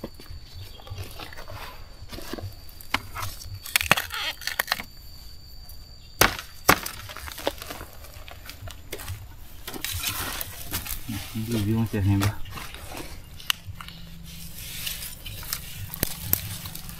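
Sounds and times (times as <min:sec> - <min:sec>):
bamboo and twigs snapping: 0:02.8 - 0:04.9, 0:12.6 - 0:14.0, 0:14.8 - 0:16.9.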